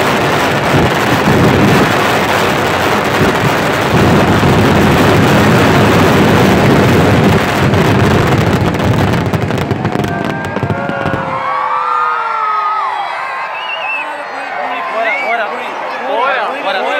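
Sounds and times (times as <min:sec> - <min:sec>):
fireworks exploding: 0:00.0 - 0:11.7.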